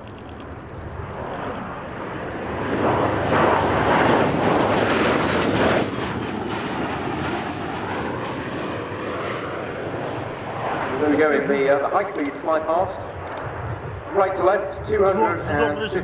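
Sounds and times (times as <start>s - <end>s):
aircraft flying past: 0.1s - 16.0s.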